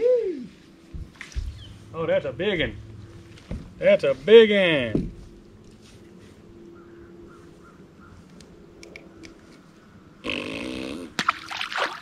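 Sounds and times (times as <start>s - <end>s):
faint steady hum: 0.0s - 12.0s
low grunt-like vocal sound: 10.2s - 11.2s.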